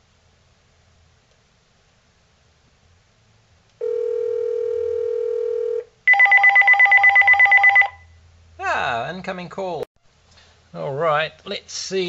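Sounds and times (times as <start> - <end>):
cordless phone ringing: 3.8 - 8.0.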